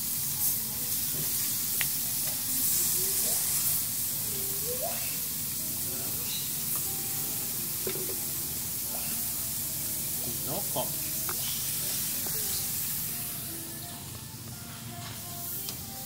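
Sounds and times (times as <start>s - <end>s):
meat sizzling on grill: 0.0s - 16.0s
faint voices: 0.3s - 9.4s, 10.1s - 14.3s.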